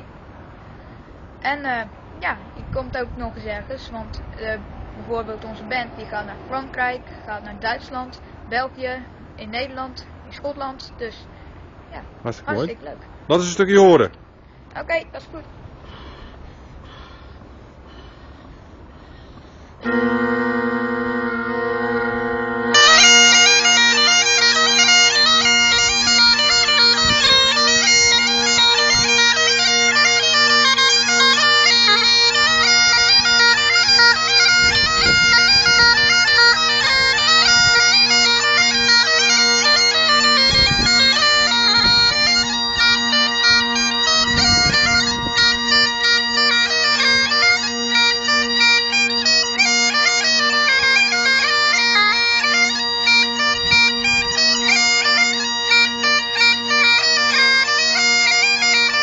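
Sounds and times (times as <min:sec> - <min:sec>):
bagpipe chanter melody: 0:19.8 - 0:59.0
bagpipe drones: 0:19.8 - 0:59.0.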